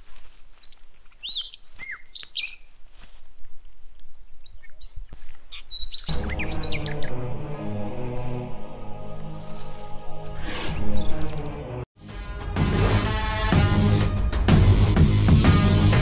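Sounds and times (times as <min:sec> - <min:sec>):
birds chirping and whistling: 0:00.0 - 0:07.3, 0:09.4 - 0:11.5
music with low bass line: 0:10.8 - 0:16.0.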